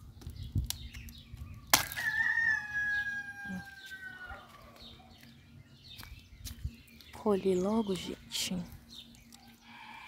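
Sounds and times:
rooster crowing: 0:02.0 - 0:04.8.

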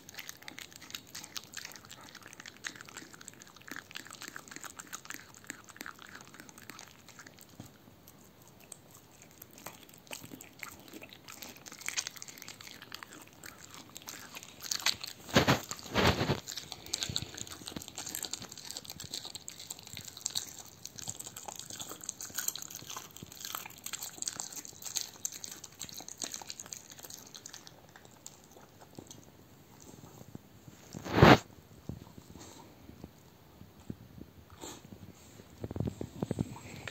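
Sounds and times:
dog chewing and gnawing: 0:00.0 - 0:32.8.

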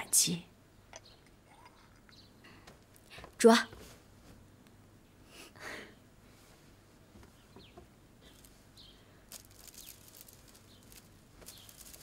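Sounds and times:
dried flowers rustling: 0:08.2 - 0:12.0.

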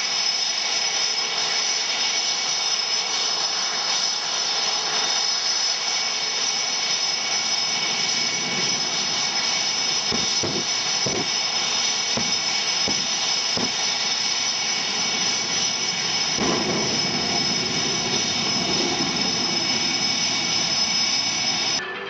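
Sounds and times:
jet engines idling: 0:00.0 - 0:21.8
low thumps: 0:10.1 - 0:11.4, 0:12.2 - 0:13.8.

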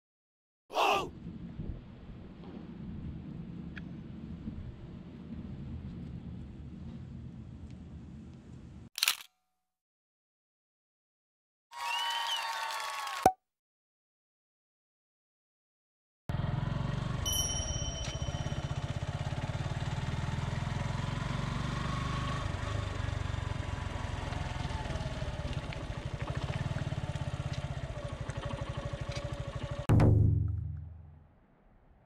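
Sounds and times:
motorcycle engine running: 0:16.3 - 0:31.1.

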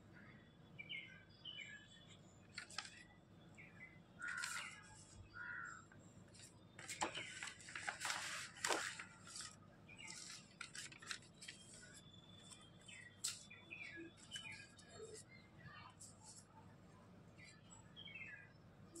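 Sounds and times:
paper and card rustling: 0:02.5 - 0:03.0, 0:04.2 - 0:05.2, 0:06.3 - 0:15.2
bird chirping faintly: 0:08.8 - 0:19.0.

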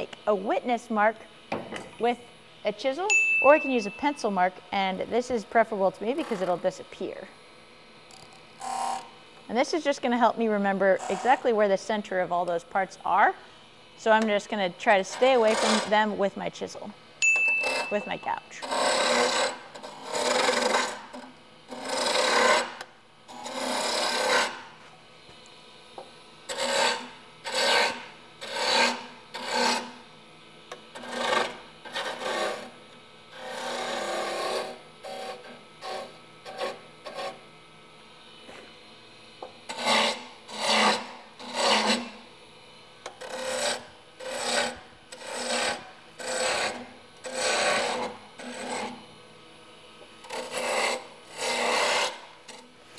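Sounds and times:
faint steady hum: 0:00.0 - 0:52.9
gouge scraping wood on lathe: 0:15.1 - 0:16.0, 0:18.6 - 0:24.7, 0:26.5 - 0:30.0, 0:31.0 - 0:32.7, 0:33.4 - 0:37.4, 0:39.7 - 0:42.2, 0:43.2 - 0:49.0, 0:50.2 - 0:52.6.

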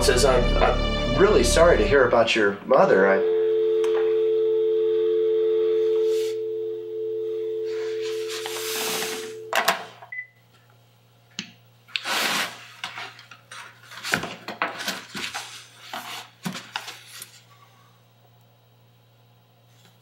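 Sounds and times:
short beep: 0:03.2 - 0:09.5
cardboard rubbing and scraping: 0:12.0 - 0:12.8.

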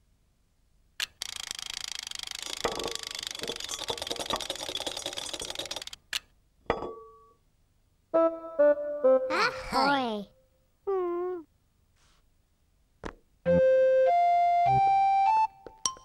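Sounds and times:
whisk beating in a bowl: 0:02.4 - 0:05.9
soft thud with ringing tone: 0:06.7 - 0:07.3.

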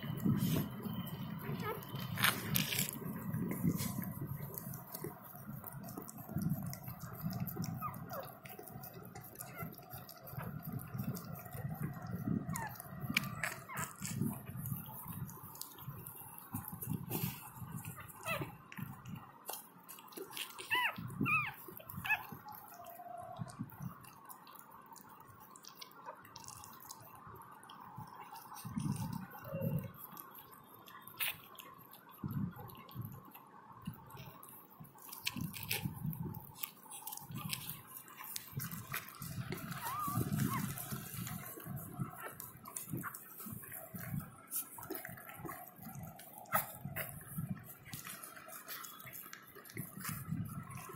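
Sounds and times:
puppy squeaking faintly: 0:00.2 - 0:02.9, 0:10.4 - 0:14.4, 0:17.9 - 0:18.6, 0:20.6 - 0:22.4, 0:29.1 - 0:29.9, 0:39.5 - 0:43.5
dog licking wet clicks: 0:01.6 - 0:50.9.

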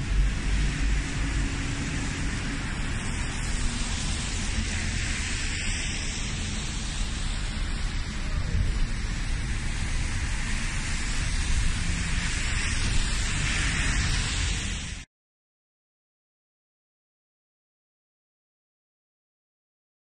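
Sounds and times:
low traffic rumble: 0:00.0 - 0:15.0
car passing by: 0:00.0 - 0:15.1
tyres hissing on wet road: 0:00.0 - 0:15.1.

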